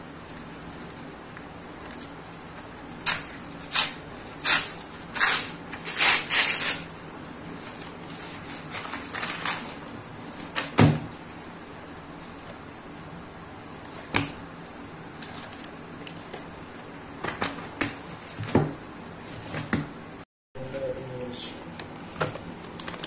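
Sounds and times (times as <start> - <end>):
paper envelope tearing: 3.1 - 6.9, 8.4 - 9.8
paper crinkling: 7.5 - 10.5, 21.9 - 23.0.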